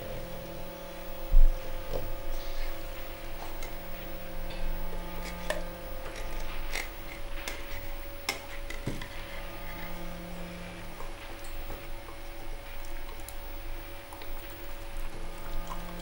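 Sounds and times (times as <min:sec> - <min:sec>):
low steady hum: 0:00.0 - 0:16.0
metal fork scraping a tin can: 0:05.1 - 0:10.0.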